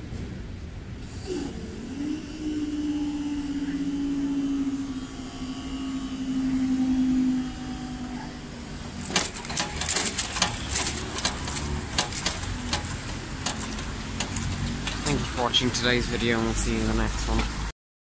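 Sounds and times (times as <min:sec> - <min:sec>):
barrier motor humming: 0:00.9 - 0:17.7
sharp clicks and knocks: 0:08.9 - 0:15.3.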